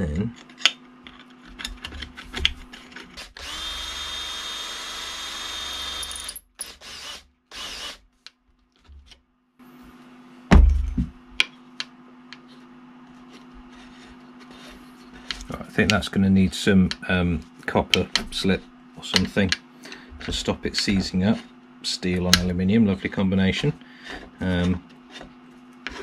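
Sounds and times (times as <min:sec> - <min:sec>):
cordless drill whining: 0:03.2 - 0:08.0
loud knock: 0:10.5 - 0:11.1.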